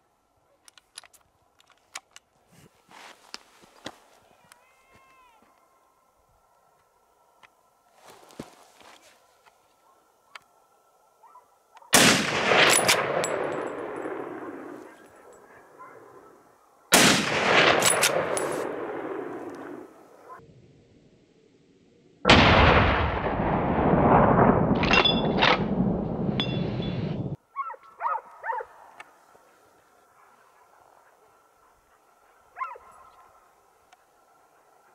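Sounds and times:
rifle shots echoing off hills: 11.9 - 20.2, 22.3 - 27.4.

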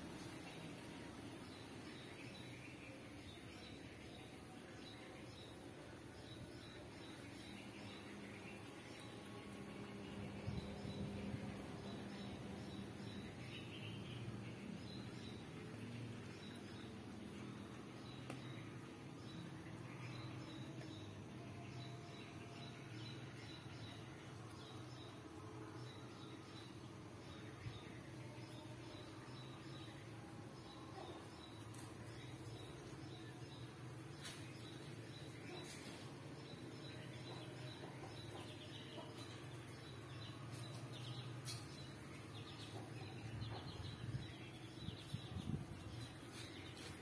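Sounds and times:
small birds chirping: 25.8 - 47.0.

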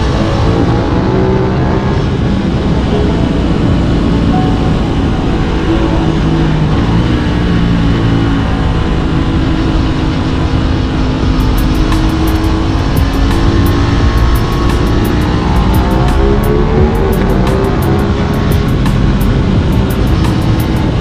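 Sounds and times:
background music: 0.0 - 21.0
motorcycle engine running: 0.0 - 21.0
wind rush: 0.0 - 21.0
quick even ticking: 11.4 - 21.0.

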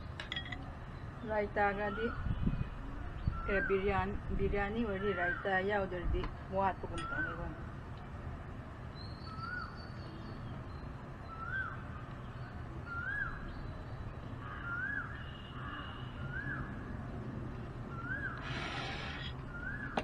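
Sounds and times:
bird whistling call: 17.9 - 20.0.

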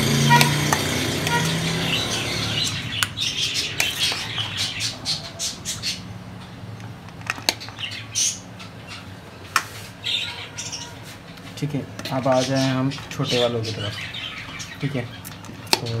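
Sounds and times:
budgerigars chattering and squawking: 1.3 - 6.5, 7.6 - 9.2, 10.0 - 11.4, 12.1 - 16.0.

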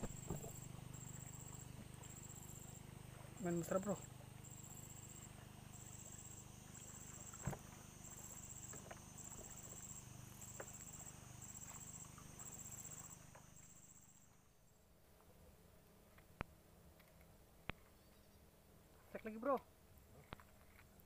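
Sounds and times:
insects buzzing: 0.0 - 14.8.

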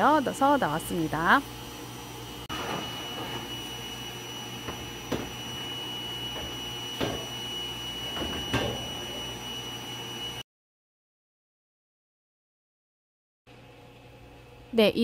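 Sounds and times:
printer mechanical hum: 0.0 - 10.4
thin high whine: 2.5 - 10.4.

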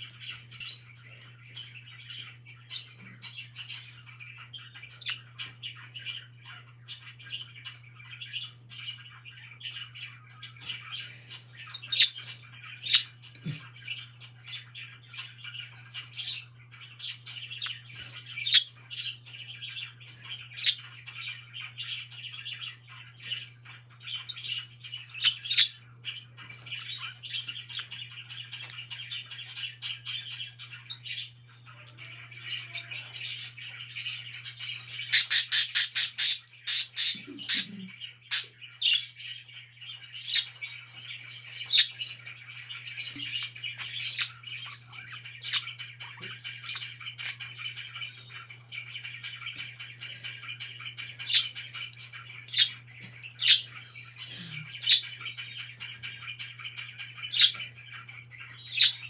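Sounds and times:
faint low hum: 0.0 - 35.5
budgerigars chattering and chirping: 0.0 - 59.0.

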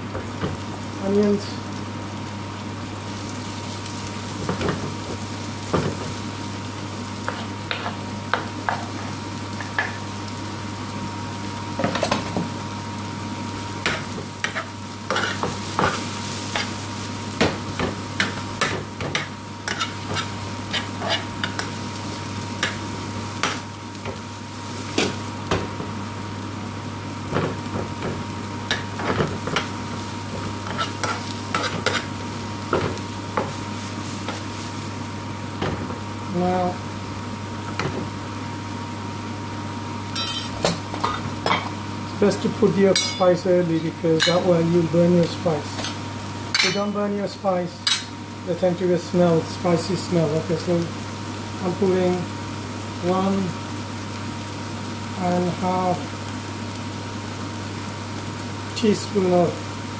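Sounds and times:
onions sizzling in a frying pan: 0.0 - 59.9
metal spoon scraping a pan: 13.9 - 16.8, 19.1 - 21.7, 30.6 - 32.1.

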